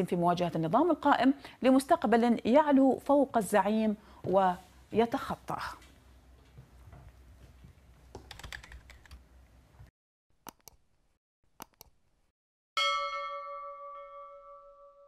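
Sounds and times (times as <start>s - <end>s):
mouse clicks: 10.5s - 10.8s, 11.6s - 12.0s
bell chime ringing: 12.8s - 15.0s.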